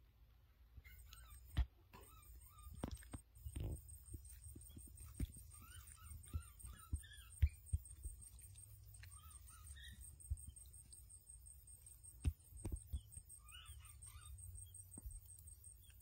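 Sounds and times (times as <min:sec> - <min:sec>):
short chirping calls: 0:00.8 - 0:16.0
dull thumps: 0:02.7 - 0:13.4.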